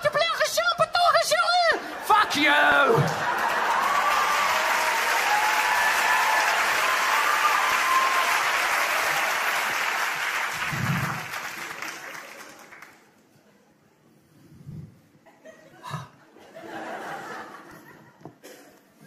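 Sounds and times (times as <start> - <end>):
audience applauding: 2.1 - 13.2
audience whooping: 2.3 - 11.8.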